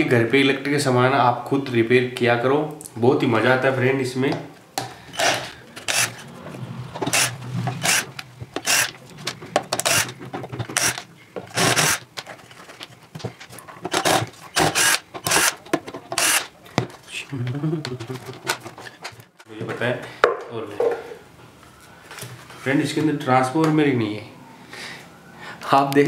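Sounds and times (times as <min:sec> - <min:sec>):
drill-driver backing out screws: 0:05.1 - 0:06.2, 0:07.0 - 0:12.8, 0:13.9 - 0:16.5
scraping and rubbing: 0:05.1 - 0:17.2, 0:17.9 - 0:19.5.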